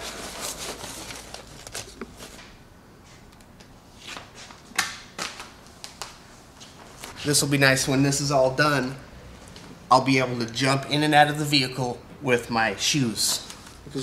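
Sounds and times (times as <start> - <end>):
plastic sheet rustling and crackling: 0.0 - 2.5.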